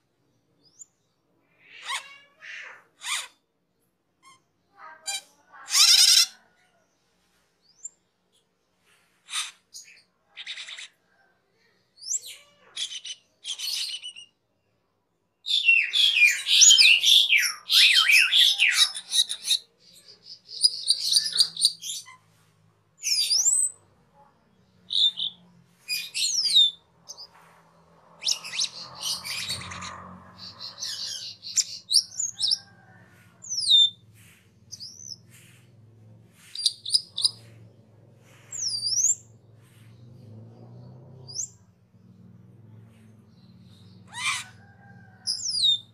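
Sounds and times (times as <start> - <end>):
starling whistles and chirps: 15.5 - 19.6, 20.2 - 22.2, 23.0 - 23.8, 24.9 - 27.3, 28.2 - 32.8, 33.4 - 34.0, 34.7 - 35.6, 36.4 - 37.5, 38.4 - 39.3, 41.3 - 41.6, 43.4 - 45.9
bird chatter: 15.5 - 22.2, 28.2 - 40.4.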